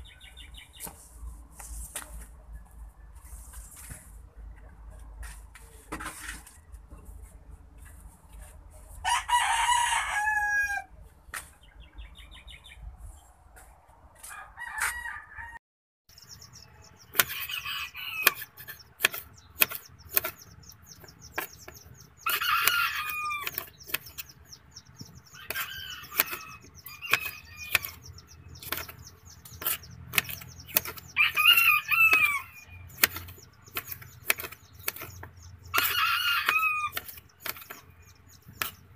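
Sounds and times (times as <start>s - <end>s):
rooster crowing: 9.0s - 10.9s, 14.3s - 15.6s, 17.2s - 18.5s, 22.2s - 23.6s, 25.4s - 28.0s, 31.0s - 32.9s, 35.7s - 37.0s
knife tapping cutting board: 33.0s - 35.9s.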